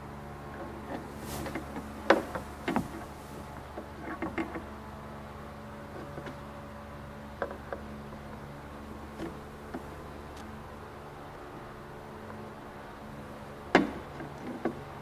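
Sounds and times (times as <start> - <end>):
steady hum: 0.0 - 5.9.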